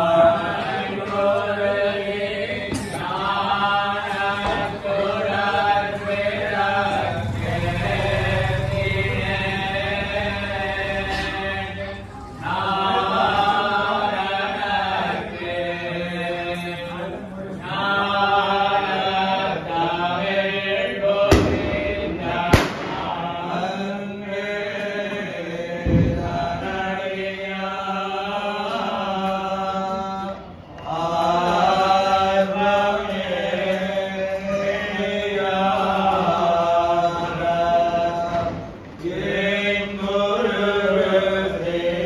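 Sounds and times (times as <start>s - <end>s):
men chanting in unison: 0.0s - 42.0s
sharp cracks: 21.3s - 23.4s.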